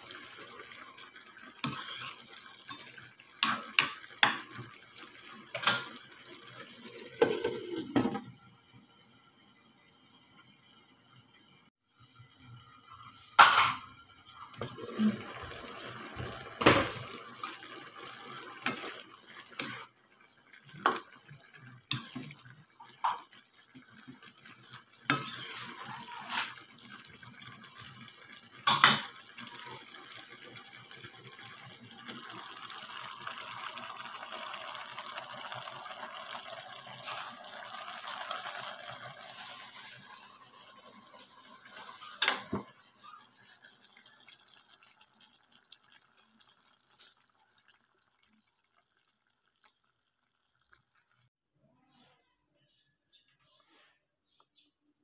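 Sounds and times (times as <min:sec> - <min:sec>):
food simmering hiss: 0:00.0 - 0:51.3
spatula scraping in a wok: 0:01.6 - 0:02.8, 0:25.1 - 0:26.6, 0:39.3 - 0:40.4.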